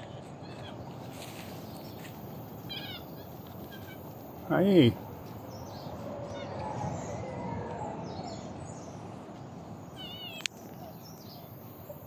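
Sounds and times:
steady background hiss: 0:00.8 - 0:05.8.

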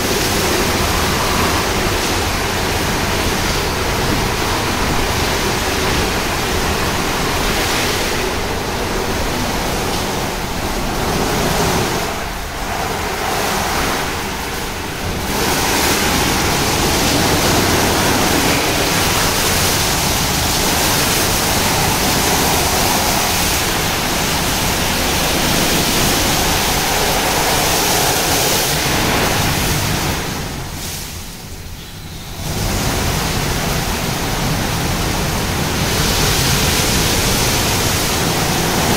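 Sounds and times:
rotating wash brushes swishing: 0:00.0 - 0:30.5
spraying water: 0:00.0 - 0:38.9.

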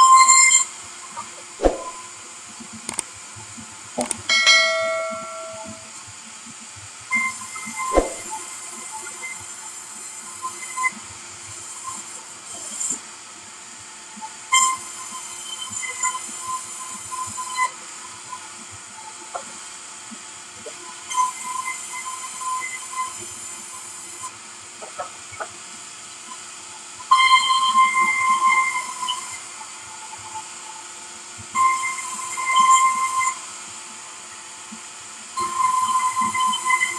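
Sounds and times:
band saw blade whining: 0:04.3 - 0:05.9, 0:07.9 - 0:08.3.

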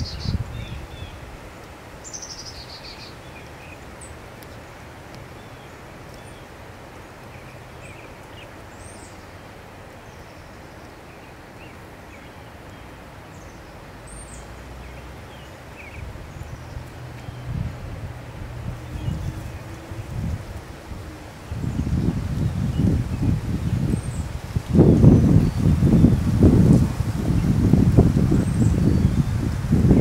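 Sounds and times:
small birds chirping: 0:02.0 - 0:04.6, 0:18.6 - 0:30.0.

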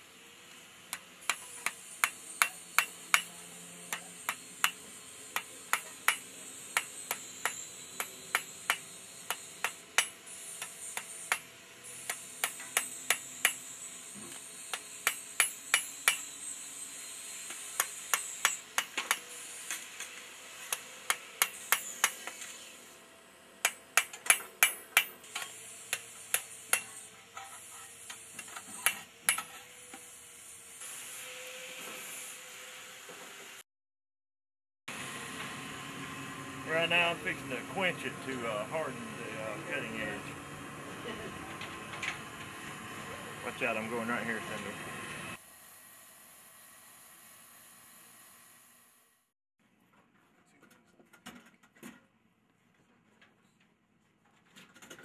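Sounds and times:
hammer striking steel on anvil: 0:00.9 - 0:13.8, 0:14.7 - 0:16.3, 0:17.5 - 0:19.8, 0:20.7 - 0:22.4, 0:23.6 - 0:29.7.

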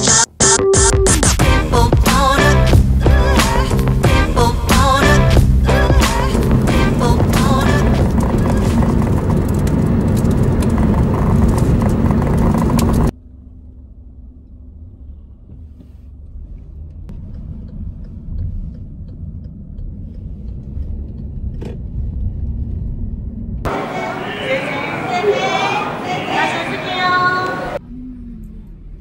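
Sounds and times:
low road rumble: 0:01.4 - 0:29.0
loud rushing noise: 0:02.7 - 0:13.1, 0:23.7 - 0:27.8.

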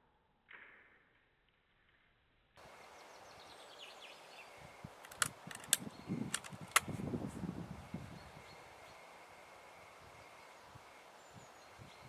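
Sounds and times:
faint bird chirps: 0:02.6 - 0:06.8, 0:07.6 - 0:12.0
outdoor background hiss: 0:02.6 - 0:12.0
sharp clicks: 0:05.0 - 0:07.0.

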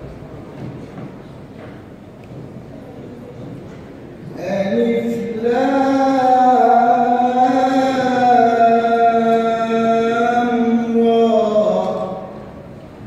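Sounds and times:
boy chanting melodically: 0:04.2 - 0:12.6.

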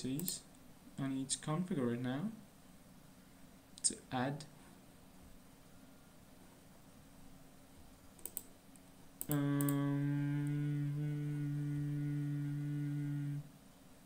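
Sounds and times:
computer mouse clicks: 0:00.1 - 0:00.4, 0:08.2 - 0:09.8
steady low-pitched hum: 0:08.8 - 0:14.0.

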